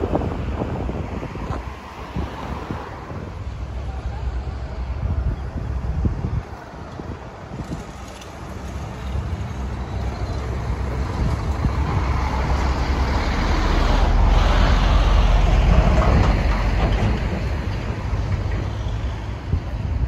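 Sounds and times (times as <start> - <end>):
wind rumble on microphone: 0.0 - 20.0
heavy vehicle passing: 7.6 - 20.0.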